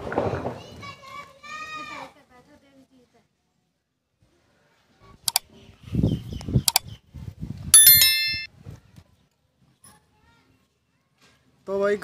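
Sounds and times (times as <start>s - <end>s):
bell notification ding: 7.8s - 8.5s.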